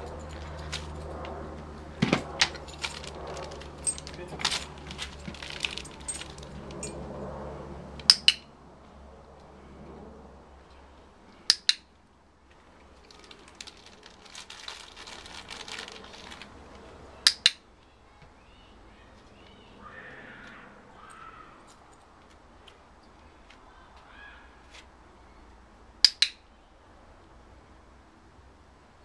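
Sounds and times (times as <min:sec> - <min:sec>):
clicker double clicks: 0:26.0 - 0:26.4.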